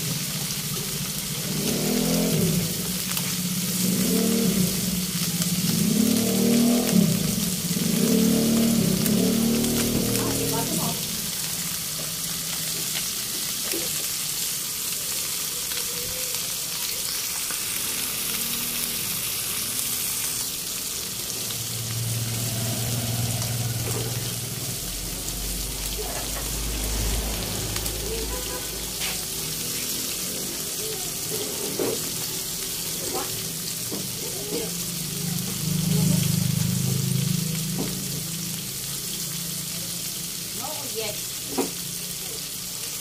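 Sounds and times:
fish sizzling in hot oil: 0.0 - 43.0.

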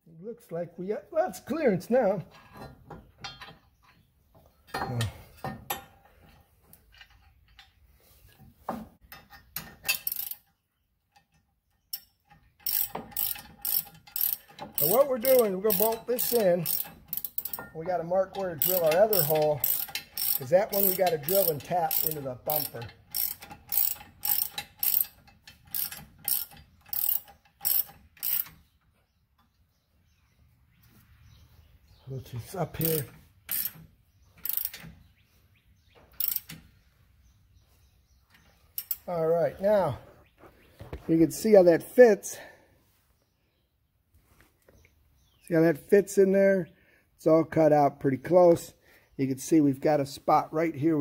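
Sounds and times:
metal clinks and knocks: 2.3 - 7.8, 9.0 - 28.6
ratchet wrench clicking: 9.8 - 10.4, 11.9 - 17.7, 18.3 - 28.5, 32.8 - 33.8, 34.4 - 34.9, 36.2 - 36.6, 38.8 - 39.1.

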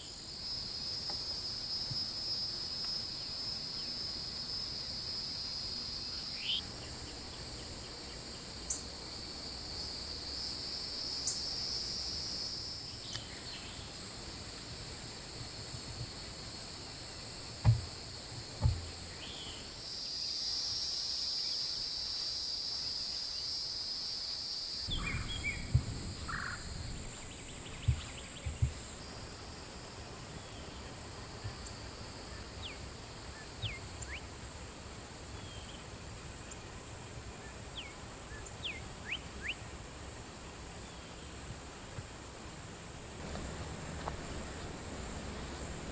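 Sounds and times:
high-pitched insect drone: 0.0 - 14.1, 16.5 - 30.6.

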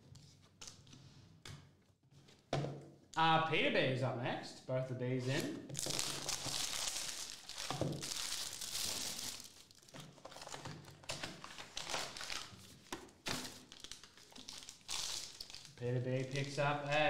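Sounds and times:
plastic shrink wrap crinkling: 5.7 - 17.0
foil pack handled: 5.8 - 16.5.

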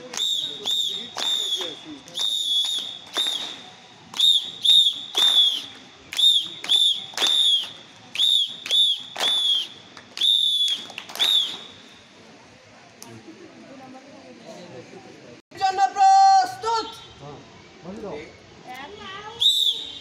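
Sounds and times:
whistle blasts: 0.2 - 12.1, 19.4 - 20.0.

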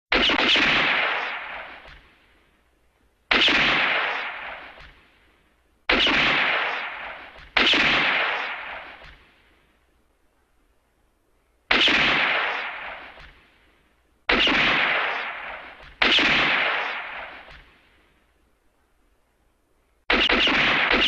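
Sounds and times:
echoing pistol gunshots: 0.1 - 1.9, 3.3 - 4.8, 5.9 - 9.1, 11.7 - 13.2, 14.3 - 17.7, 20.1 - 21.0.

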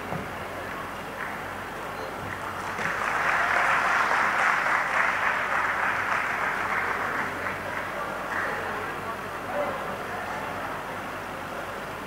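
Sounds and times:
audience applauding: 2.3 - 9.0.

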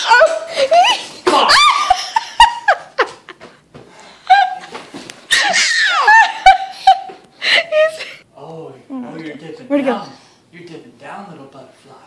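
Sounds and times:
people laughing and squealing: 4.3 - 7.2.

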